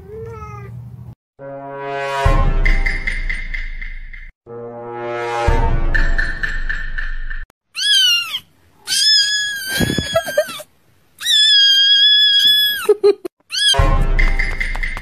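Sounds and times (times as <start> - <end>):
music: 1.4 - 7.4, 13.7 - 15.0
kitten meowing loudly: 7.8 - 10.6, 11.2 - 12.8, 13.5 - 13.8.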